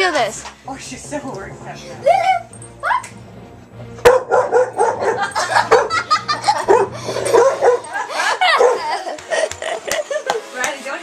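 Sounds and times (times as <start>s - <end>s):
dog barking: 4.1s - 6.0s, 6.7s - 8.0s, 8.6s - 8.9s.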